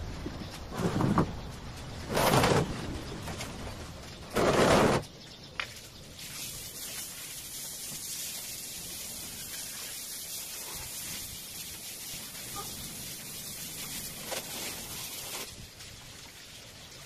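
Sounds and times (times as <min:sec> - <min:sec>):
hose spraying on tile floor: 0:05.8 - 0:17.0.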